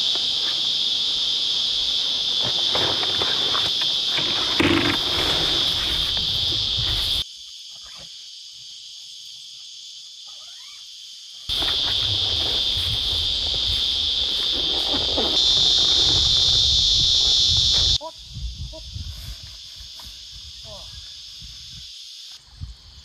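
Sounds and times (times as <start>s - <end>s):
high-pitched insect chorus: 0.0s - 23.0s
tent handling bumps and rustles: 11.5s - 16.2s.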